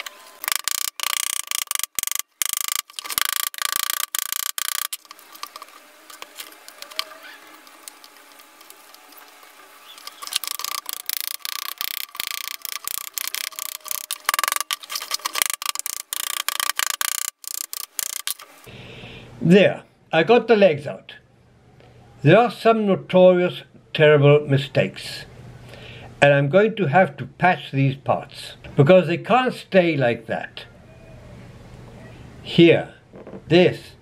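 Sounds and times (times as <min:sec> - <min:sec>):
plaster crackling and crunching: 0:00.0 - 0:18.4.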